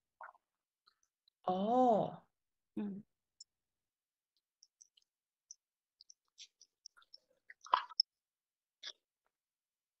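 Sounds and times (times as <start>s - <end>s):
faint clicks and ticks: 4.3s - 8.2s.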